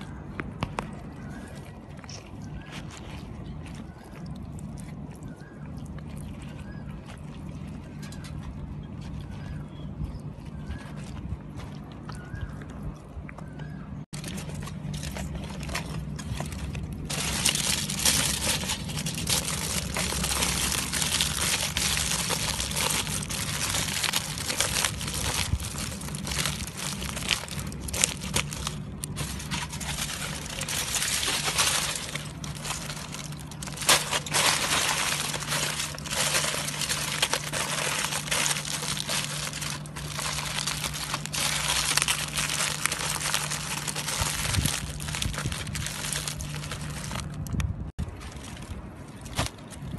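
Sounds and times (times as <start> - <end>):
aluminium foil crinkling: 14.1 - 47.8.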